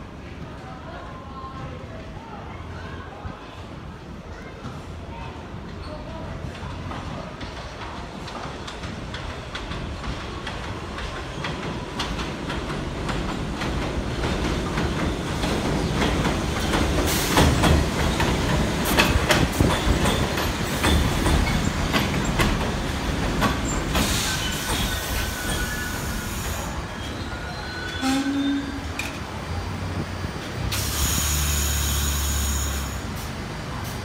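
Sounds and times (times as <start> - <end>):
train running on steel track: 0.0 - 34.0
wheels clacking over rail joints: 6.6 - 27.2
high wheel squeal: 23.9 - 28.9.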